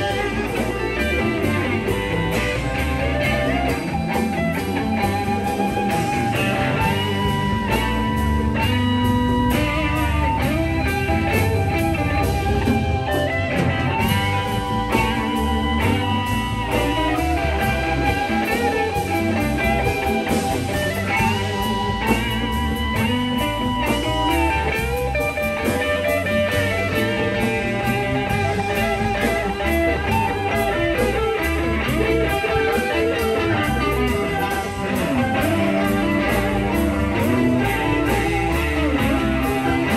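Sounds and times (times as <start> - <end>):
electric guitar lead: 0.0 - 39.9
live blues-rock band: 0.0 - 39.9.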